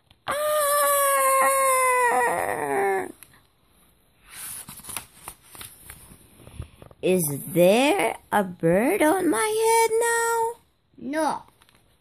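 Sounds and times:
child screaming: 0.3s - 3.2s
book page turning: 4.2s - 7.0s.

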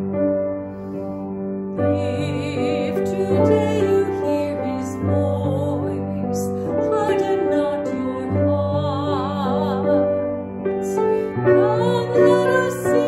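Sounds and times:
woman singing with vibrato: 1.9s - 10.1s, 10.8s - 13.0s.

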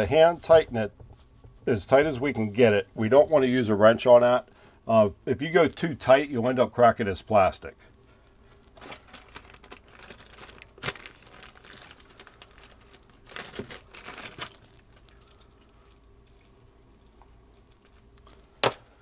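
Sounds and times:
rustling and crinkling: 8.4s - 19.0s.

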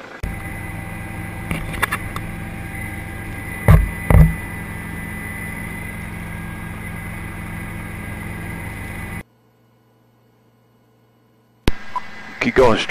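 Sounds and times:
helicopter engine and rotor drone: 0.0s - 9.2s.

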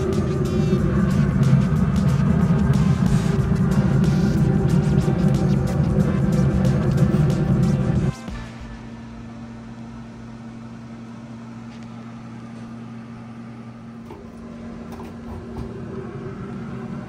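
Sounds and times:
smoker fan hum: 0.0s - 17.0s.

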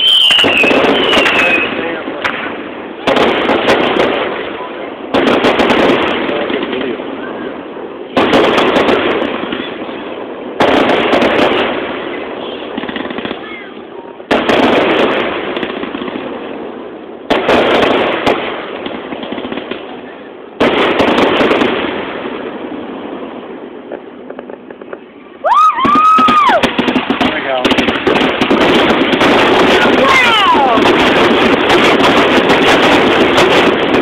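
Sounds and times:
firework booms: 0.0s - 34.0s
firework crackle: 0.0s - 34.0s.

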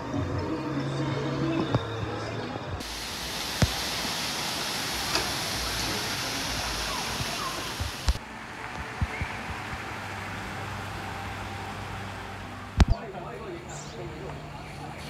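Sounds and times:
waterfall rushing into pool: 2.8s - 13.0s.

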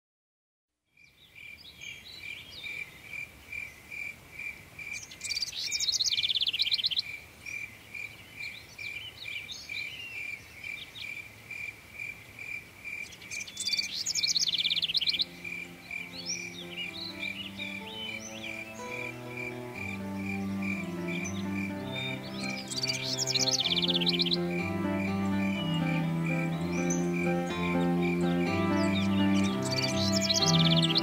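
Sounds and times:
bird trilling song: 13.0s - 31.0s
low instrument notes: 15.1s - 31.0s.

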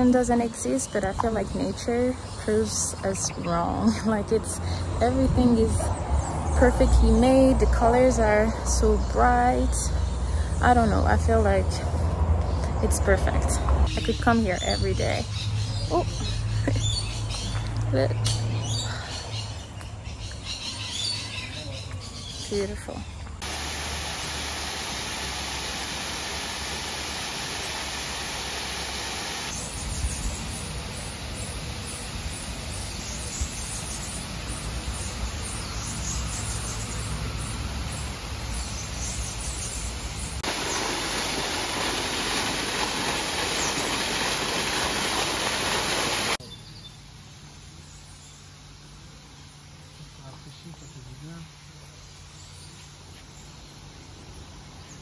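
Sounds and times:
rushing hiss-like outdoor noise: 0.0s - 17.6s, 18.5s - 55.0s.

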